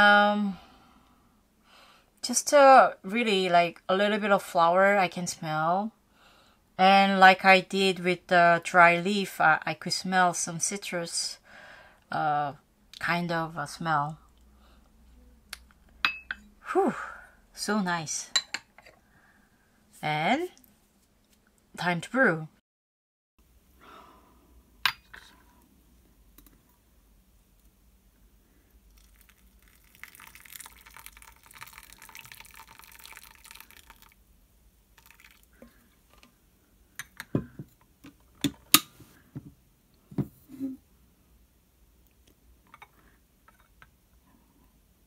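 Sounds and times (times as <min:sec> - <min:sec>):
hot water pouring: 0:28.7 - 0:34.3, 0:34.9 - 0:35.9.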